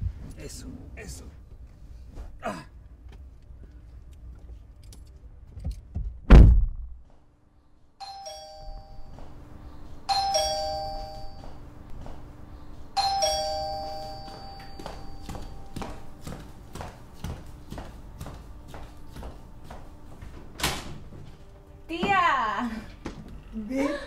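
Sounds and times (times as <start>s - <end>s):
loud thump: 6.2s - 7.0s
two-tone doorbell chime: 8.0s - 9.4s, 10.1s - 11.7s, 13.0s - 16.0s.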